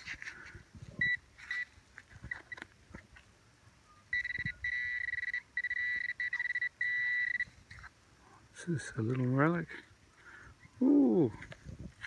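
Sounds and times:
probe scraping in dirt: 0:00.0 - 0:03.3
continuous high detector tone: 0:00.0 - 0:08.9
metal detector beeping: 0:00.9 - 0:02.8, 0:03.9 - 0:07.9.

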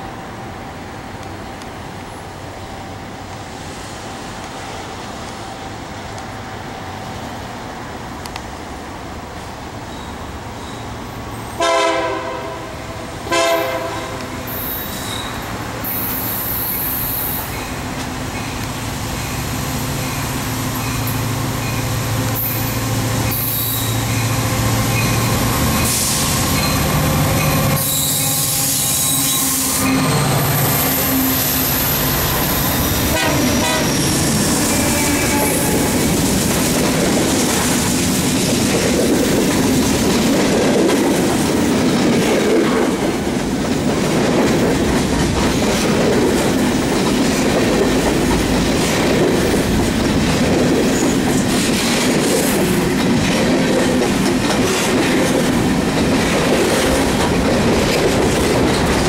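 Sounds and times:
diesel locomotive engines passing: 0:00.0 - 0:59.0
train wheels clacking over rails: 0:09.9 - 0:59.0
train horn blasts: 0:11.6 - 0:14.5, 0:27.8 - 0:31.6, 0:33.1 - 0:36.0.

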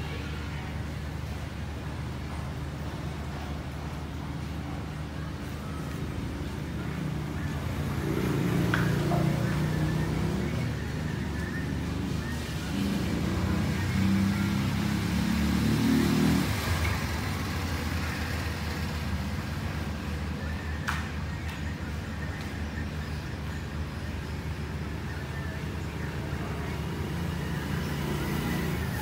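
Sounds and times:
vehicle engine passing: 0:06.8 - 0:19.6.

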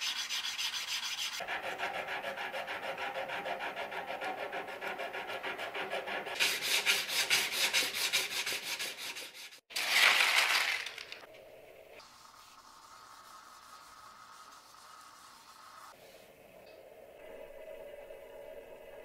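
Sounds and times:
sandpaper rubbing by hand: 0:00.0 - 0:09.6.

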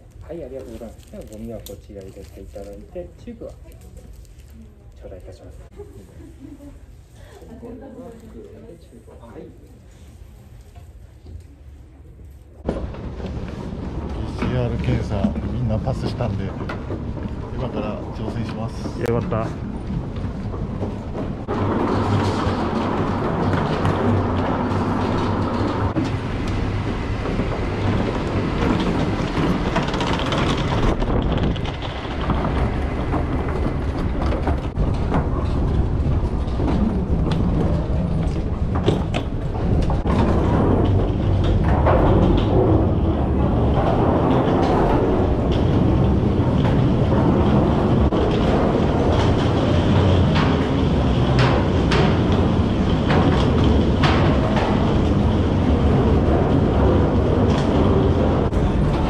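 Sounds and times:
wheeled suitcases rolling on wood: 0:12.3 - 0:59.0.

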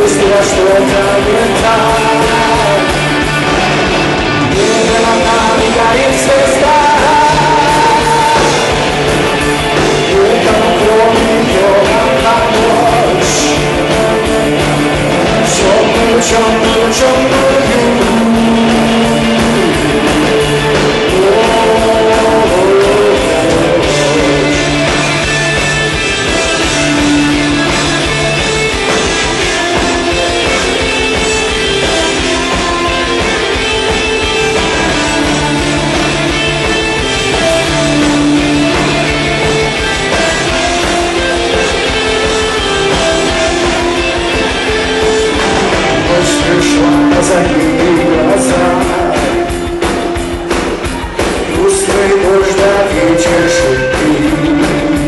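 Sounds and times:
live rock band playing: 0:00.0 - 0:55.0.

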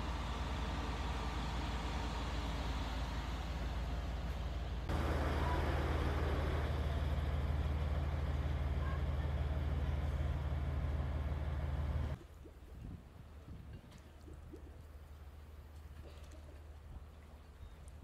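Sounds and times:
engine idling: 0:00.0 - 0:12.2.

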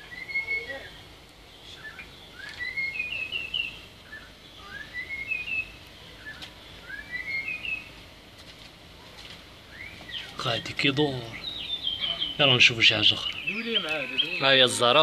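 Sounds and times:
songbird chirping: 0:00.0 - 0:15.0.

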